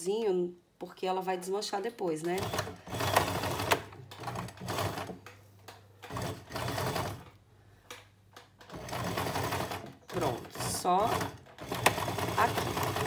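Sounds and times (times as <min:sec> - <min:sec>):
sewing machine stitching: 0:02.4 - 0:05.2, 0:06.0 - 0:07.3, 0:08.6 - 0:13.0.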